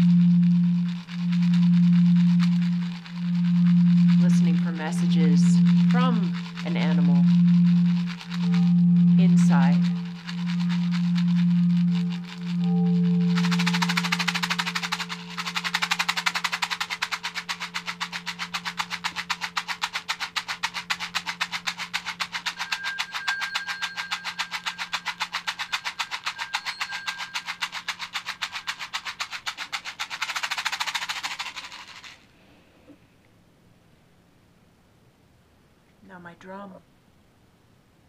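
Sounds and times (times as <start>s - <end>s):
singing bowl low ringing: 0.0s - 28.7s
rattle shaken rhythmically: 0.0s - 32.3s.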